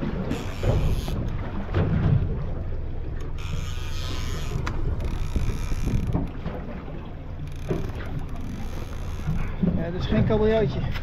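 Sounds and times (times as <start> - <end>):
steady low rumble: 0.0 - 11.0
fishing reel whirring: 0.2 - 1.3, 3.2 - 6.4, 7.2 - 9.6
reel click: 0.2 - 1.4, 3.1 - 6.5, 7.4 - 9.6.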